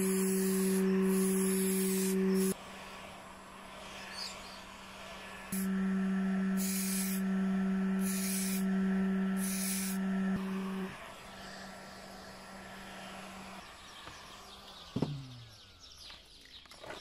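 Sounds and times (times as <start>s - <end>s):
aerosol spray can hissing: 0.0s - 2.6s, 6.6s - 7.2s, 8.0s - 8.7s, 9.4s - 10.0s
heat gun humming: 0.0s - 2.6s, 5.5s - 11.0s.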